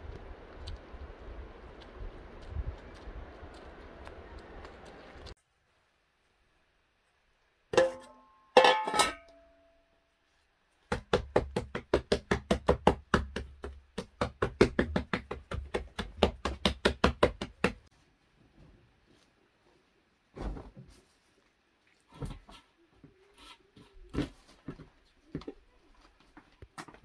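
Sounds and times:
metal bowls clanking: 7.8 - 9.4
hand slapping bread dough: 10.9 - 17.9.

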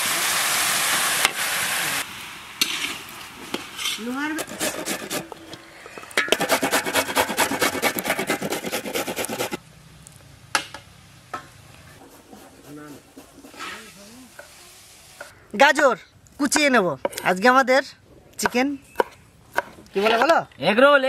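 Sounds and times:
vegetables scraped on metal grater: 3.8 - 5.5, 6.3 - 9.6.

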